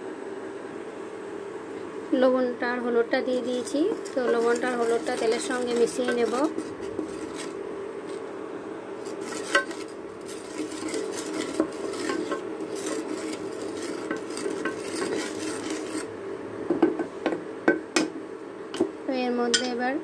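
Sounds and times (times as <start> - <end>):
steady low hum: 0.0 - 20.0
spatula scraping a metal pot: 3.2 - 8.2, 9.0 - 16.1.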